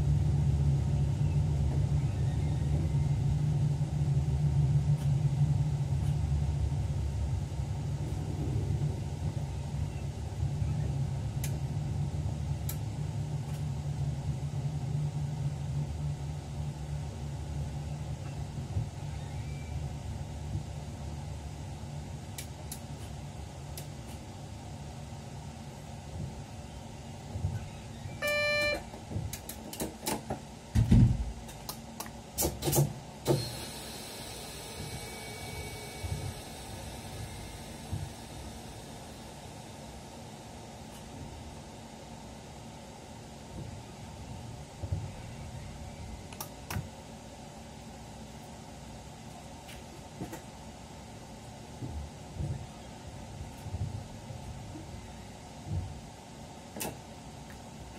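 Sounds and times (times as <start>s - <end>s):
train rumbling along track: 0.0s - 31.8s, 32.5s - 41.7s
steady hum: 0.0s - 57.9s
short electronic beep: 28.2s - 28.9s.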